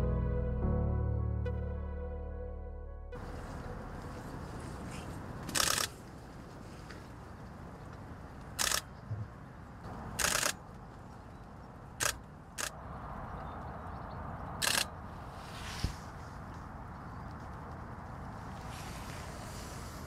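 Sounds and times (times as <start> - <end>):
outdoor background noise: 3.1 - 20.0
camera shutter bursts: 5.5 - 6.0, 8.6 - 8.9, 10.2 - 10.6, 12.0 - 12.8, 14.6 - 14.9.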